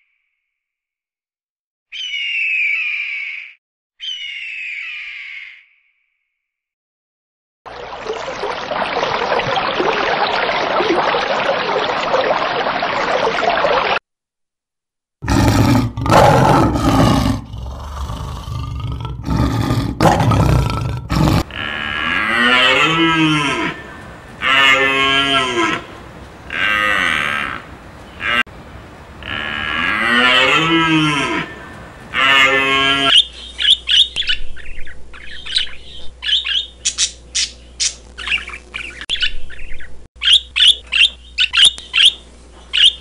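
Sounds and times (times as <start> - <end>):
loud animal calls: 15.2 - 28.5.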